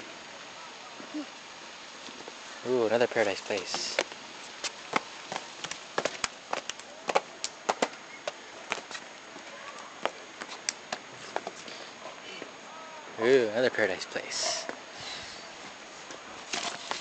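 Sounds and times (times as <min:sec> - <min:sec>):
faint outdoor background hiss: 0:00.0 - 0:17.0
footsteps on stone paving: 0:03.4 - 0:11.7, 0:16.4 - 0:17.0.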